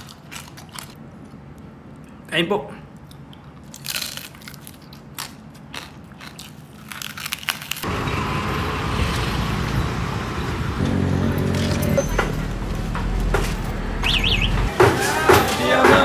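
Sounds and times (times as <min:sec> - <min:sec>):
crackling bites being chewed: 0:00.0 - 0:01.4, 0:02.9 - 0:07.8
open vehicle rumble: 0:07.8 - 0:15.4
steady hum: 0:10.1 - 0:14.7.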